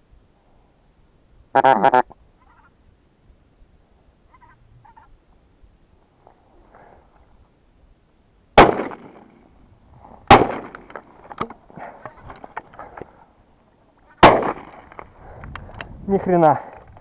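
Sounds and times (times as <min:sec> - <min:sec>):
shotgun shots: 0:08.6 - 0:09.3, 0:10.3 - 0:11.0, 0:14.2 - 0:14.8.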